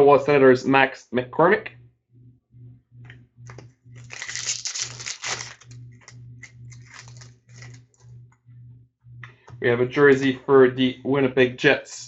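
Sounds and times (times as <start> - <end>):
foil wrapper tearing and crinkling: 4.0 - 6.1, 6.7 - 7.8.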